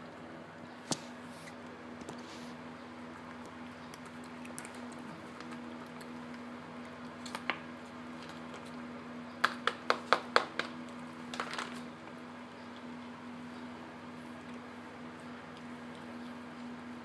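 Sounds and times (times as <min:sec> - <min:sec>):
cat crunching food: 0:03.0 - 0:08.9.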